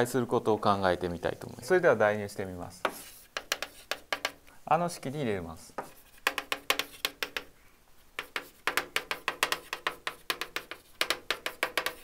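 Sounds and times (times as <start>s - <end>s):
chalk tapping on blackboard: 2.8s - 4.5s, 5.7s - 12.0s.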